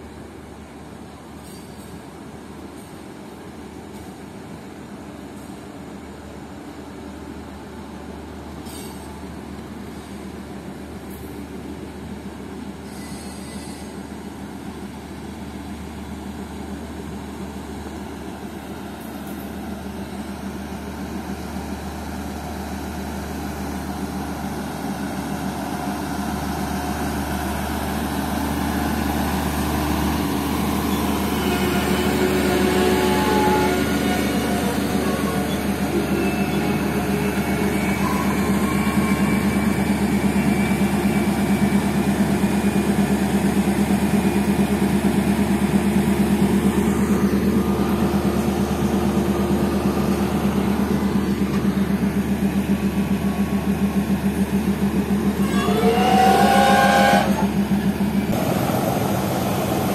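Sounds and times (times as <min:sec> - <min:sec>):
diesel locomotive engine: 0:00.0 - 0:59.9
train coaches rolling on track: 0:00.0 - 0:59.9
high wheel squeals: 0:12.8 - 0:14.0, 0:30.3 - 0:42.1, 0:55.3 - 0:57.6.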